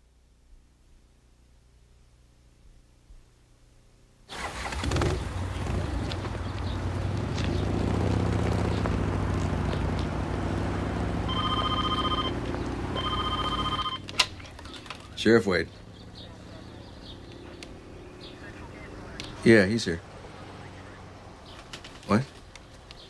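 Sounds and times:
outdoor traffic noise: 0:00.0 - 0:23.0
vehicle engine running: 0:04.5 - 0:22.0
telephone electronic ringer: 0:11.3 - 0:12.4, 0:13.0 - 0:14.0.

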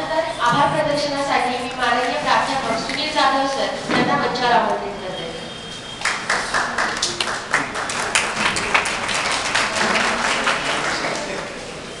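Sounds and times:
audience applauding: 0:06.0 - 0:11.6.

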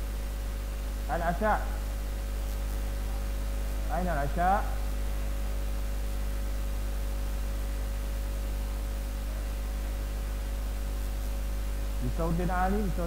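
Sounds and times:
low electrical hum: 0:00.0 - 0:13.0
faint hiss: 0:08.4 - 0:13.0.

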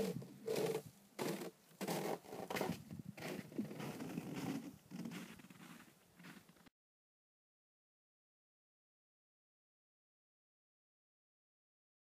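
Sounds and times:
lake ice crackling and creaking: 0:00.0 - 0:06.7.

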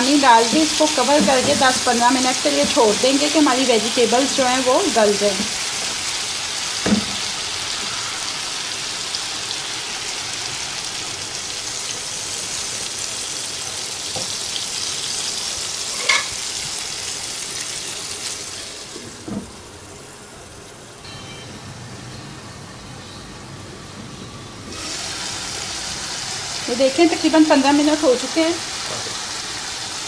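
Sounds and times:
vegetables sizzling in oil: 0:00.0 - 0:30.0
glass lid clinking: 0:15.9 - 0:16.3.

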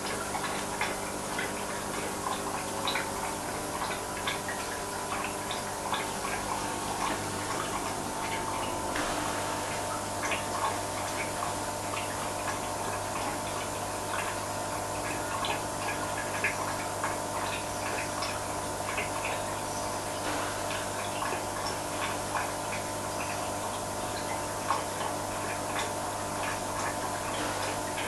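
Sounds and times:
aquarium pump humming: 0:00.0 - 0:28.0
water ticks and drips: 0:00.0 - 0:28.0.

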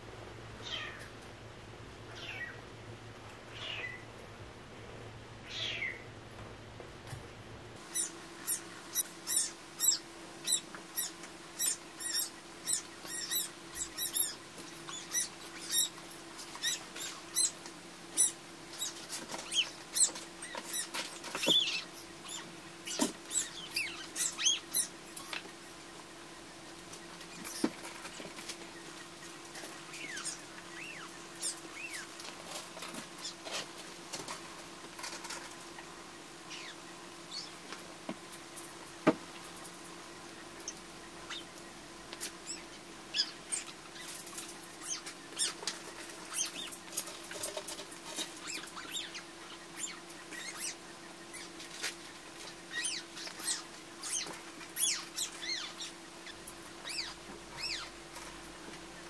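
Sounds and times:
faint steady hum: 0:00.0 - 0:59.0
kittens mewing: 0:07.9 - 0:25.5.

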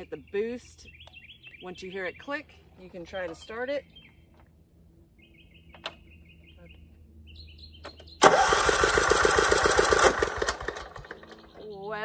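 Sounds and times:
birds chirping: 0:00.0 - 0:08.6, 0:10.6 - 0:12.0
starter motor cranking engine: 0:08.2 - 0:11.6.

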